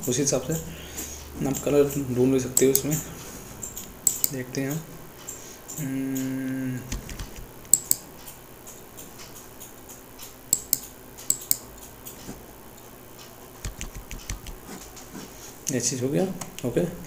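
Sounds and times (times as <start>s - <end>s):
mouse and keyboard clicks: 3.6s - 4.4s, 6.9s - 12.3s, 13.6s - 15.1s.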